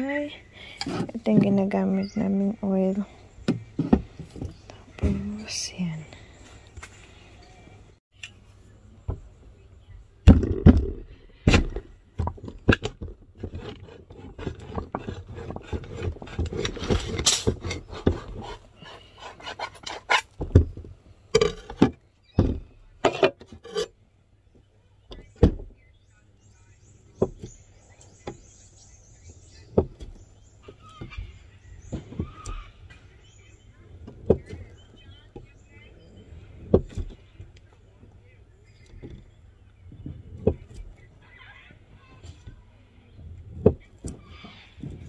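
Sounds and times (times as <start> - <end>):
metal tin scraping: 13.4 - 20.4, 23.1 - 24.0.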